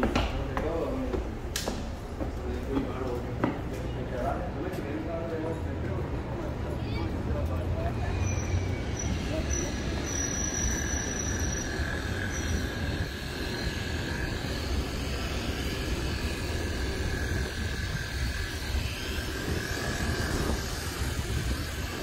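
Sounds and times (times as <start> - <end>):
traffic rumble: 0.0 - 22.0
faint high whine: 7.8 - 22.0.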